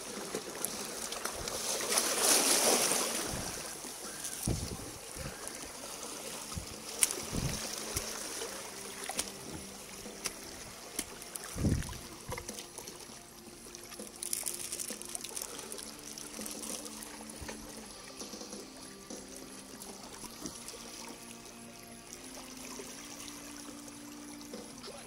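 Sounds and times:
water trickling over rocks: 0.0 - 25.0.

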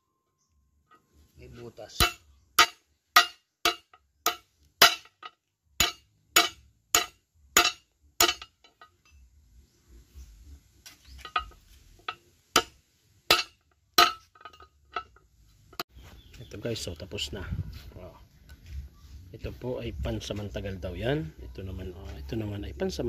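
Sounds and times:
hammer striking metal: 1.9 - 9.2, 11.2 - 15.1
metal parts clinking: 11.0 - 12.2, 13.3 - 15.8.

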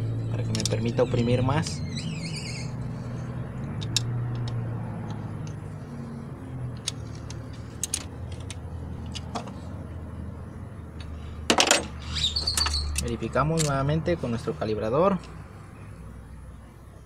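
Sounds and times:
metallic tool clicks: 3.7 - 5.6, 12.6 - 13.8.

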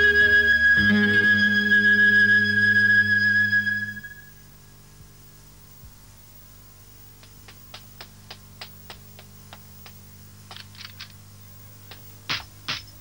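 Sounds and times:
footsteps on hard paving: 7.2 - 11.2, 11.9 - 13.0.

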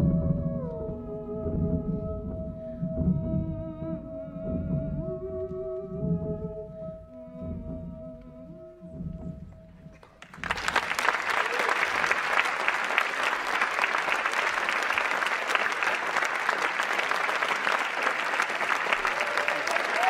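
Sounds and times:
audience applause: 10.0 - 20.0.

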